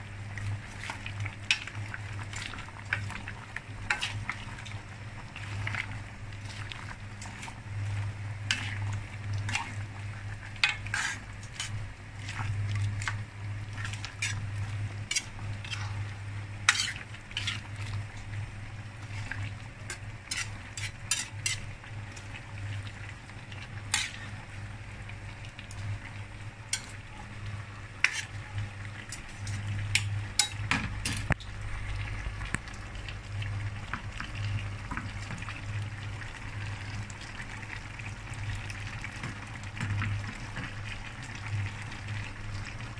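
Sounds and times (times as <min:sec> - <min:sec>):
steady low hum: 0:00.0 - 0:38.9
food sizzling: 0:00.0 - 0:42.9
ladle scraping metal wok: 0:08.5 - 0:09.8, 0:10.6 - 0:11.8, 0:13.8 - 0:17.8, 0:19.0 - 0:21.7, 0:23.9 - 0:24.3, 0:28.0 - 0:28.4.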